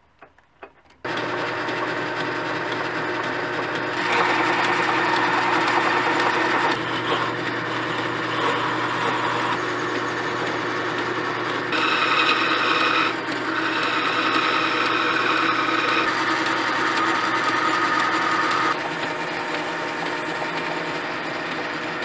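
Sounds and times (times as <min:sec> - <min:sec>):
gouge scraping spinning wood: 0:01.0 - 0:22.0
lathe motor hum: 0:01.0 - 0:22.0.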